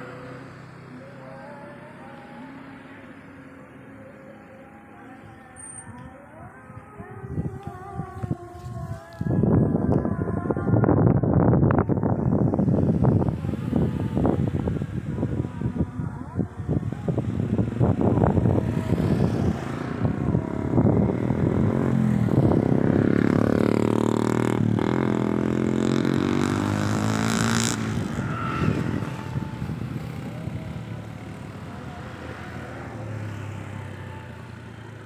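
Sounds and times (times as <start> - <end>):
vehicle engine passing by: 12.4 - 35.0.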